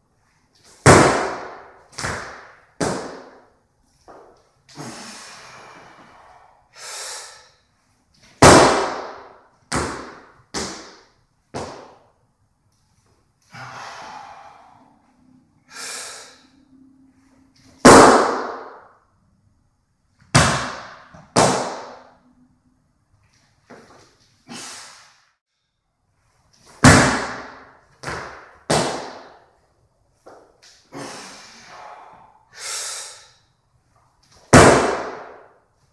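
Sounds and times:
heavy breathing: 0:04.7 - 0:07.6, 0:13.4 - 0:17.4, 0:30.9 - 0:33.4.

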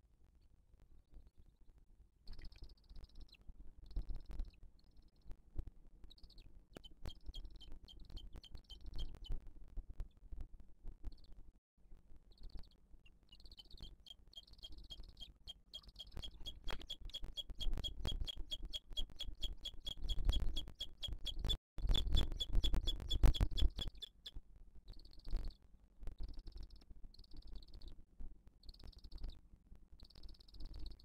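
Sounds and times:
bird chick peeping: 0:02.3 - 0:05.4, 0:06.1 - 0:09.4, 0:12.3 - 0:25.6, 0:26.2 - 0:28.0.

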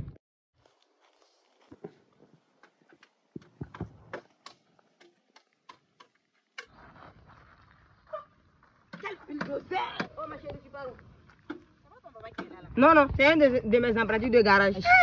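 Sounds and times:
footsteps on dirt road: 0:00.6 - 0:11.8.

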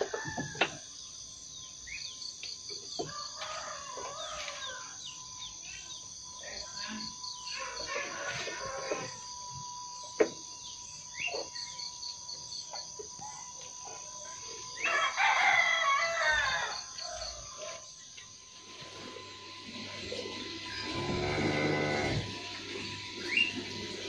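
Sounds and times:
rooster crowing: 0:00.0 - 0:00.8, 0:03.0 - 0:05.1, 0:07.5 - 0:09.3, 0:14.6 - 0:17.8
pulsing high-pitched buzz: 0:00.0 - 0:24.0
bird chirps: 0:09.9 - 0:13.6, 0:22.8 - 0:23.7.

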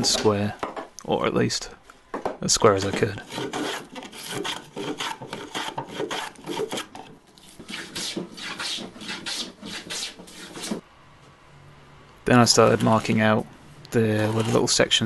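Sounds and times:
hand plane scraping wood: 0:02.8 - 0:10.8, 0:14.0 - 0:14.8.

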